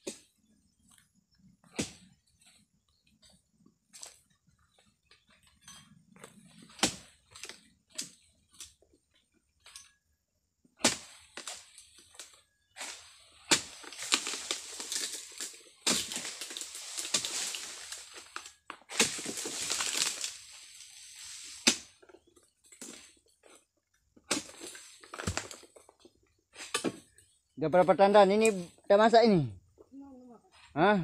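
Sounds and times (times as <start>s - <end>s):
sharp crack of sickle cut: 10.8s - 11.7s, 12.8s - 20.4s, 21.5s - 22.0s
falling frond rustling and crashing: 13.5s - 21.6s.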